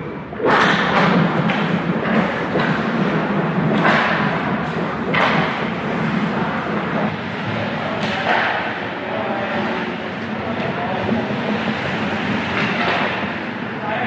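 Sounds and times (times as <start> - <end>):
sharp knocks and thuds: 0.5 - 7.1.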